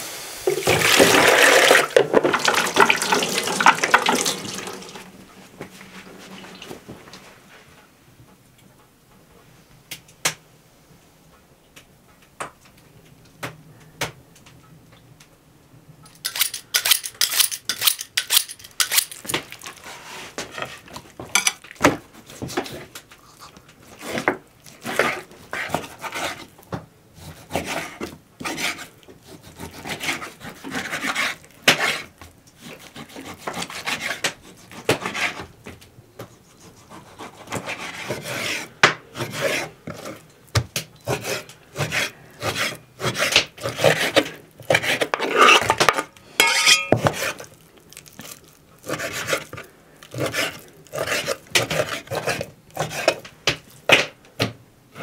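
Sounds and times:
knife slicing meat: 48.8s - 53.2s.

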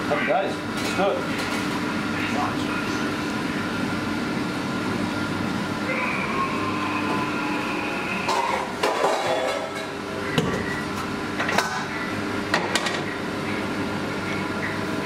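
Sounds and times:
steady machine hum: 0.0s - 15.0s
metal kitchenware clanking: 8.3s - 9.9s.

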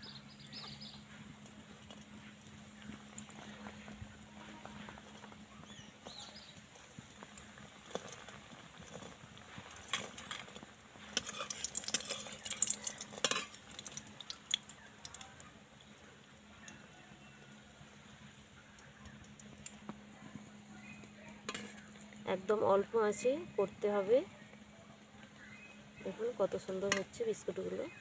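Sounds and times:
dough frying in oil: 0.0s - 28.0s
metal spatula scraping pan: 11.1s - 13.6s.

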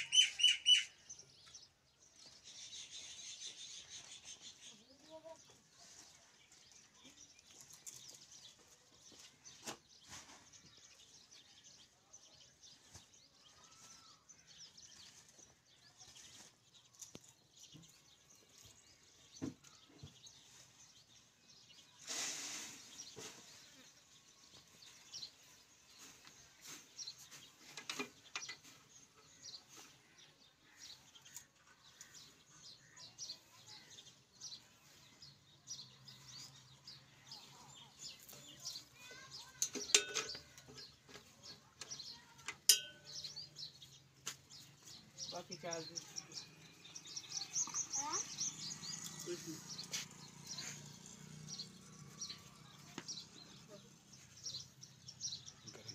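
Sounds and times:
faint bird chirps: 45.2s - 53.8s.

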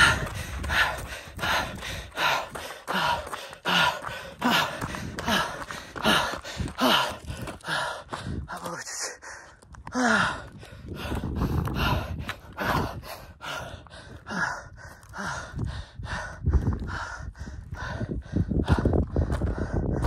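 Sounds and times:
footfalls on stony ground: 0.0s - 8.9s, 18.6s - 20.0s
man panting heavily: 0.0s - 20.0s.

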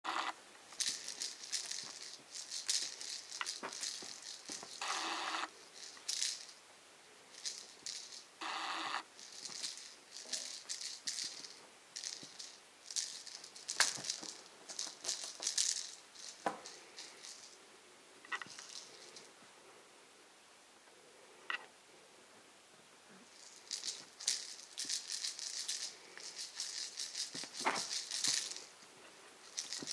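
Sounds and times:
plastic ball toy rattling: 0.1s - 6.6s, 7.3s - 17.6s, 18.3s - 19.3s, 23.3s - 28.8s, 29.4s - 29.9s.

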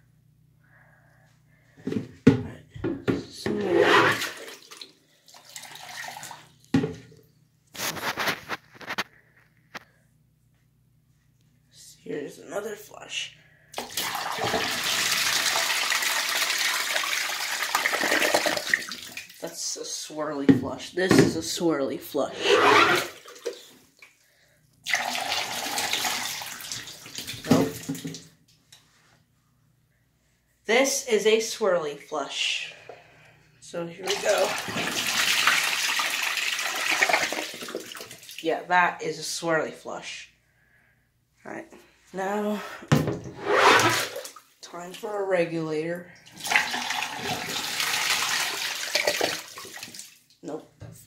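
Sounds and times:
toy toilet flushing: 3.5s - 6.6s, 13.8s - 19.4s, 22.2s - 23.7s, 24.8s - 28.2s, 34.0s - 38.4s, 43.3s - 44.4s, 46.3s - 50.1s
water splashing and sloshing: 3.6s - 7.0s, 22.4s - 24.2s, 46.2s - 50.4s.

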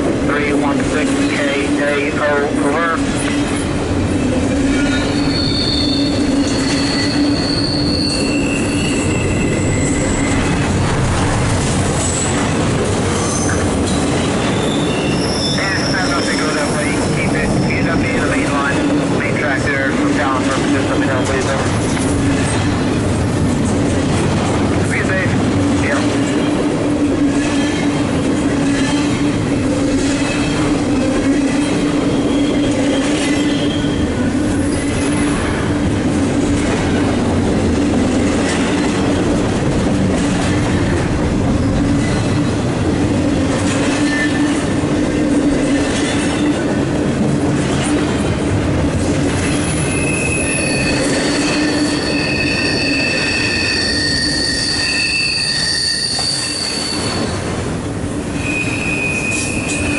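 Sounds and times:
freight train wheels rumbling: 0.0s - 59.9s
high squealing tones: 4.9s - 10.5s, 49.8s - 57.4s, 58.4s - 59.9s.

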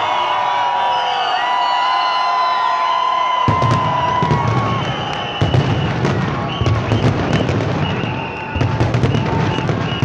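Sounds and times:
fireworks bangs: 3.4s - 10.0s
low rumble of fireworks bursts: 3.5s - 10.0s.

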